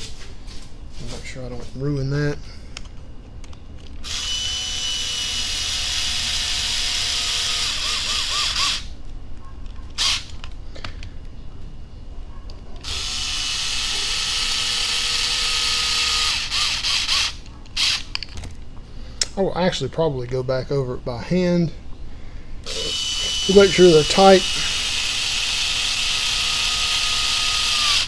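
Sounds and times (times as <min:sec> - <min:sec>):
electric screwdriver whirring: 0:04.0 - 0:08.9, 0:10.0 - 0:10.3, 0:12.8 - 0:18.1, 0:22.7 - 0:28.0.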